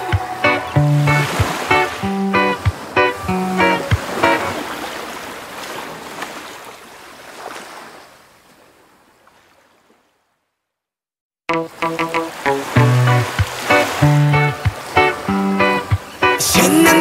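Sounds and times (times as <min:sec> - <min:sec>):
wash of noise: 0:00.0 - 0:06.4, 0:11.8 - 0:17.0
pop music: 0:15.7 - 0:17.0.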